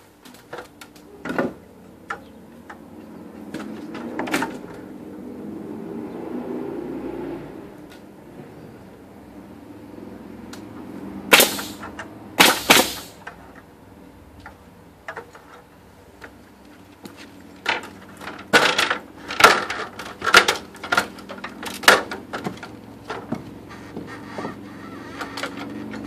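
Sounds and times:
nail gun firing into wood: 0:11.3 - 0:13.2.

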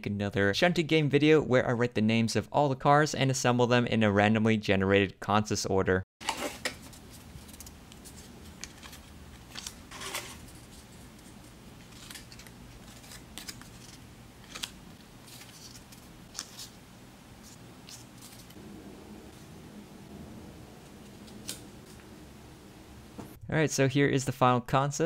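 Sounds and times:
paper slips rustling: 0:06.2 - 0:16.8, 0:17.4 - 0:18.6
faint steady hum: 0:06.6 - 0:23.4.

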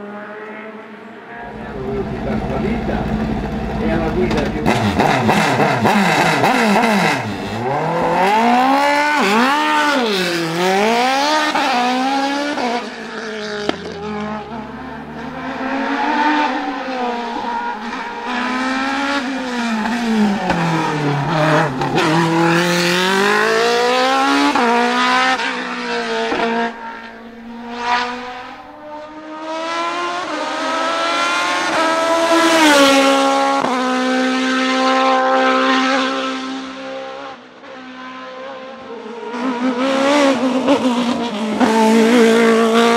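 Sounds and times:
motorcycle engine revving hard: 0:01.5 - 0:12.8, 0:13.4 - 0:37.1, 0:39.4 - 0:42.9.

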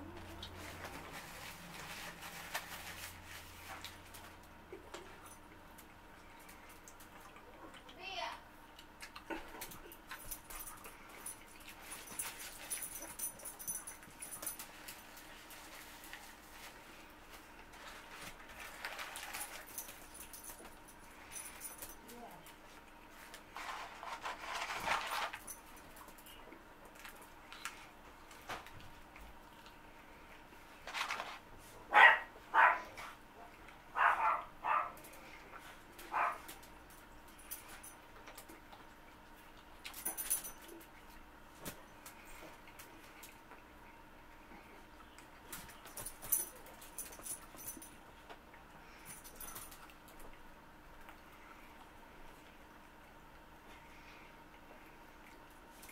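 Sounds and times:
rustling: 0:00.2 - 0:04.4, 0:14.4 - 0:20.4, 0:23.2 - 0:25.5
man chewing: 0:08.7 - 0:12.6
paper wrapper crinkling: 0:17.7 - 0:19.8
dog barking: 0:31.9 - 0:33.0, 0:34.0 - 0:35.0, 0:36.1 - 0:36.4.

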